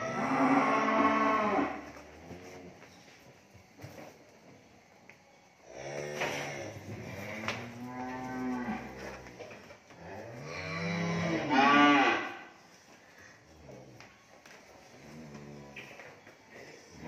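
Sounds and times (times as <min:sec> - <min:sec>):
cattle mooing: 0:00.0 - 0:02.6, 0:05.7 - 0:09.3, 0:10.0 - 0:12.6.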